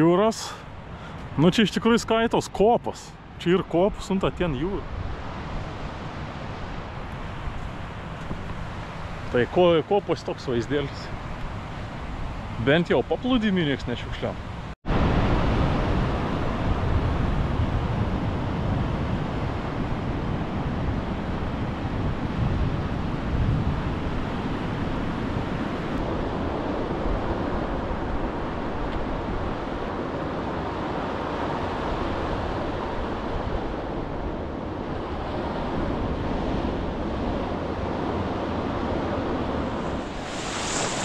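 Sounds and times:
wind buffeting microphone: 14.9s - 41.0s
ocean surf breaking: 24.0s - 41.0s.

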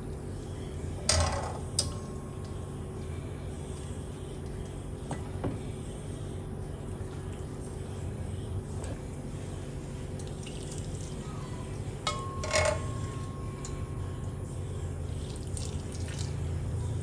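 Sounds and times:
steady low hum: 0.0s - 17.0s
liquid pouring and splashing: 10.2s - 11.2s, 15.2s - 16.4s.

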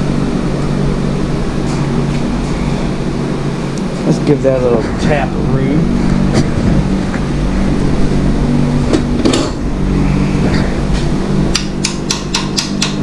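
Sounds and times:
low hum: 0.0s - 13.0s
small hammer tapping metal: 11.5s - 13.0s.

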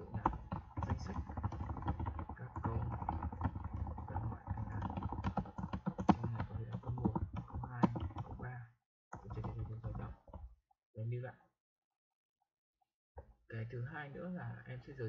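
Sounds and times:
keyboard typing: 0.0s - 8.5s, 9.2s - 10.5s.

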